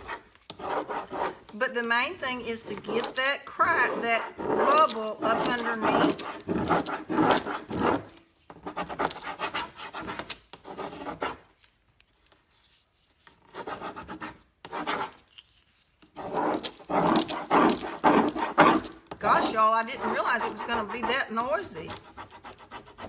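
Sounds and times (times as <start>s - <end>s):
rubbing transfer sheet: 2.2s - 11.4s, 16.2s - 23.0s.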